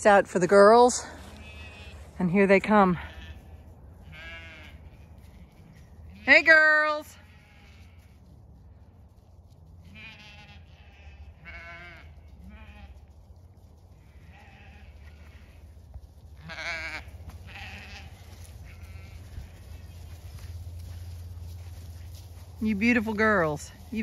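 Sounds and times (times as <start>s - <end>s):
sheep bleating: 1.2s - 2.2s, 2.9s - 8.2s, 9.8s - 13.0s, 14.0s - 15.7s, 16.4s - 21.0s.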